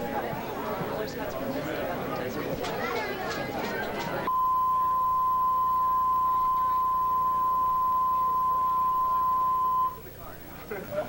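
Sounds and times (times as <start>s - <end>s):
steady pure reference tone: 4.3s - 10.4s.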